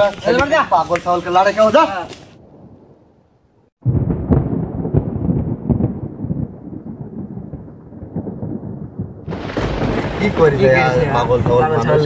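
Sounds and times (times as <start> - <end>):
deep thunder-like rumble: 2.4 - 12.0
dull booms: 2.4 - 12.0.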